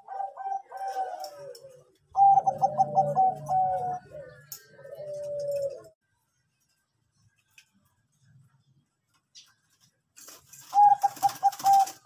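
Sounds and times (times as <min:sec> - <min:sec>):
dove cooing: 0:00.0 - 0:06.0, 0:10.6 - 0:12.0.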